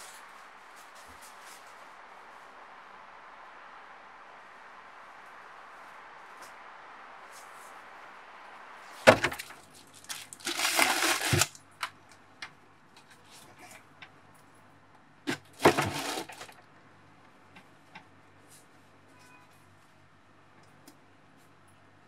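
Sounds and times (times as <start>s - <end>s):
crinkly rustling: 0.0s - 2.6s, 8.8s - 12.2s, 15.3s - 16.6s.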